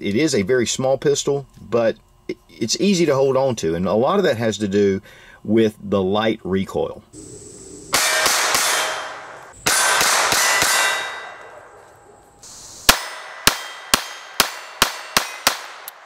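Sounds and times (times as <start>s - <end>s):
pistol shots: 7.9s - 11.7s, 12.9s - 16.0s.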